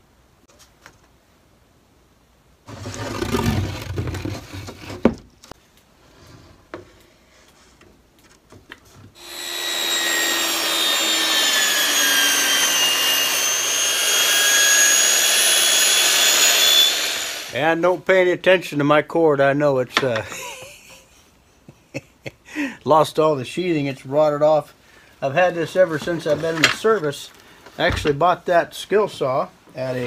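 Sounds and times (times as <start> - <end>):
circular saw cutting plywood: 9.2 - 17.8.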